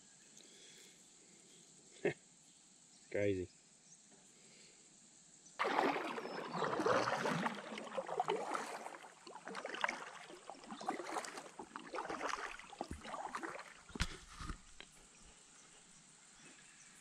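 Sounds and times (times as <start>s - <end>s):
paddle splashing and dripping: 5.6s - 15.4s
water lapping at hull: 5.6s - 16.2s.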